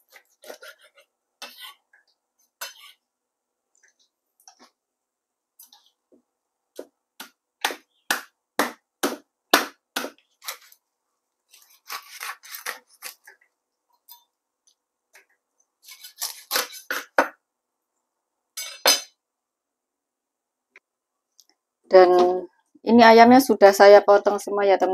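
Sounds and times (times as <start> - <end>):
knife chopping chicken on wooden block: 7.2 - 10.2.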